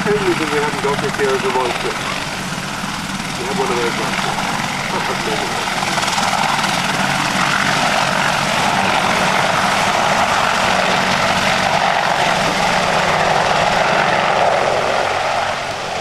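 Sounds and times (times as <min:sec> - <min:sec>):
helicopter engines and rotors: 0:00.0 - 0:16.0.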